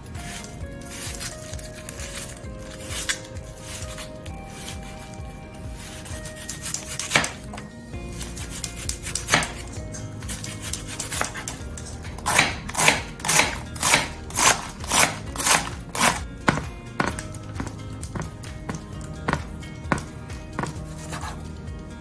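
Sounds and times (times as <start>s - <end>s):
knife chopping on wooden board: 5.8s - 7.5s, 8.4s - 9.6s, 10.3s - 21.4s.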